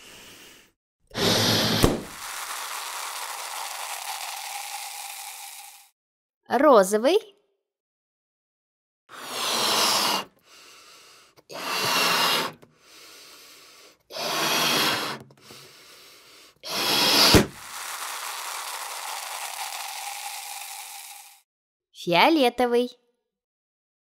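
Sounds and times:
puffs of air into balloon: 0.0s - 5.8s, 9.1s - 21.4s
balloon popping: 1.1s - 5.9s, 16.6s - 21.4s.

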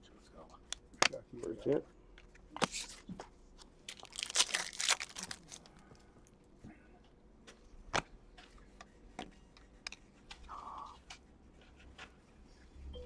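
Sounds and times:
foil pack tearing and crinkling: 3.9s - 5.7s.

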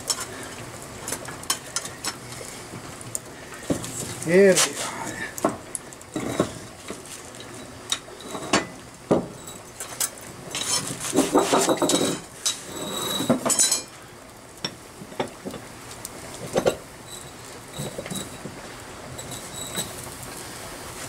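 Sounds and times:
metal clanks and clattering: 6.2s - 13.9s.

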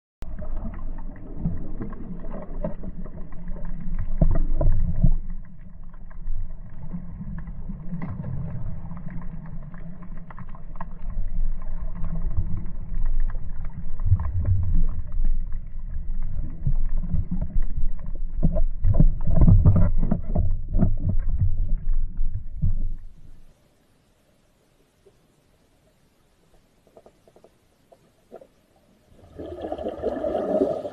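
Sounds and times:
underwater rumble of moving water: 0.2s - 30.9s.

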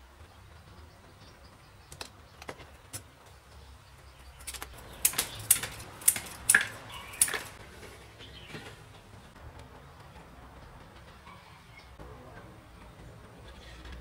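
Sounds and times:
scissors snipping wood: 4.4s - 7.6s.

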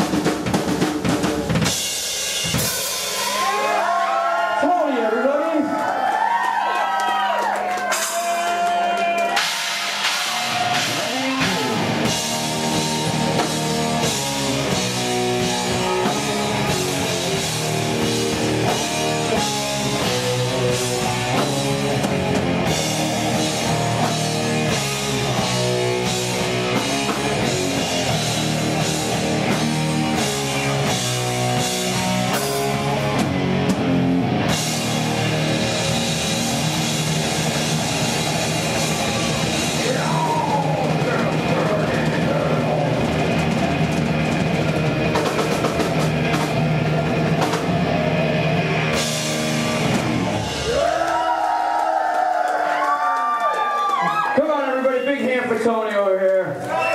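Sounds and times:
drum kit beat: 0.0s - 4.1s, 7.5s - 51.6s
bass guitar: 0.0s - 4.5s, 7.9s - 51.6s
distorted electric guitar: 9.2s - 50.9s.

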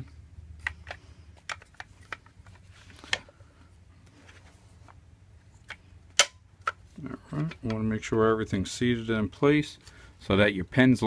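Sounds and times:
faint handling noise: 0.0s - 8.6s.

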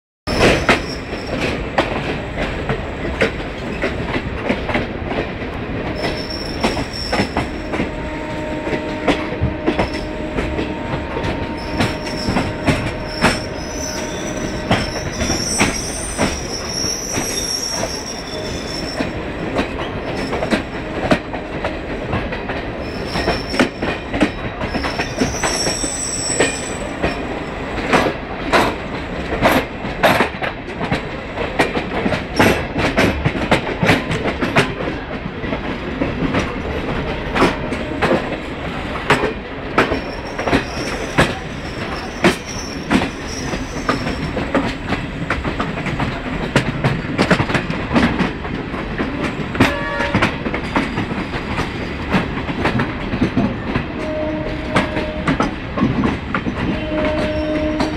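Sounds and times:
train wheels rumbling on rails: 0.3s - 57.9s
high wheel squeals: 6.0s - 7.5s, 11.5s - 19.1s, 22.8s - 23.8s, 24.7s - 27.0s, 40.0s - 44.3s.

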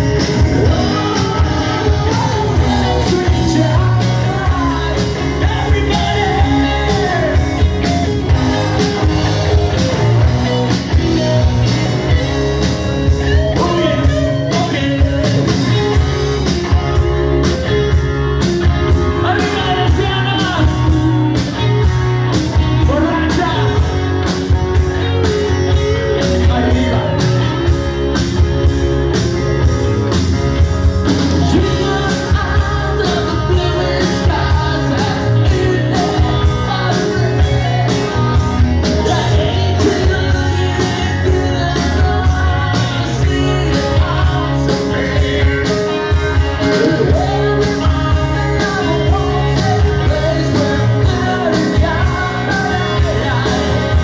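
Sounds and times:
bass guitar: 0.0s - 54.0s
distorted electric guitars: 0.0s - 54.0s
steady drum beat: 0.0s - 54.0s.

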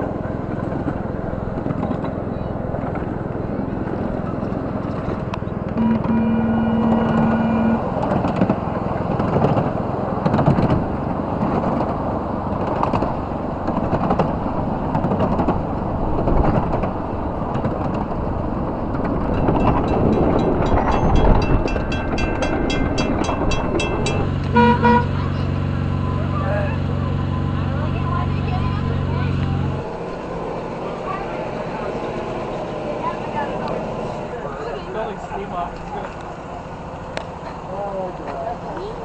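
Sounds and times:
miniature train cars rattling: 0.0s - 39.0s
train horn: 5.8s - 8.0s, 22.2s - 25.4s
ringing clicks: 19.4s - 24.5s.

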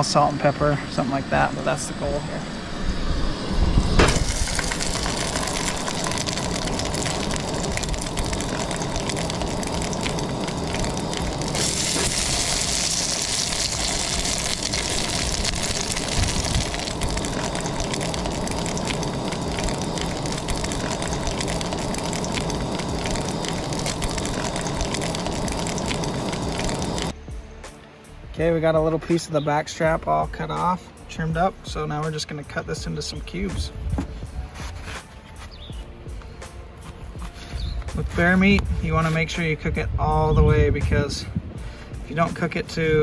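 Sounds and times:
fat sizzling and crackling in pot: 3.9s - 27.2s.

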